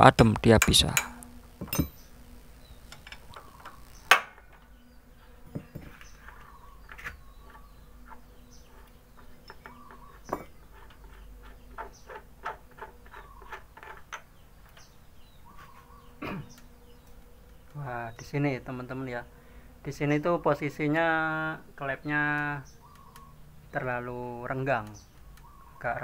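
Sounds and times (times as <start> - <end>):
metal spanner clicks: 0.6 - 2.0.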